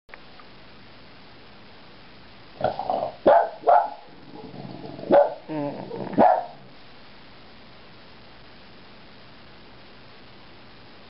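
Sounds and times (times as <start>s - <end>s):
dog growling: 2.6s - 3.2s, 4.1s - 6.7s
dog barking: 3.2s - 4.1s, 5.1s - 5.5s, 6.2s - 6.6s.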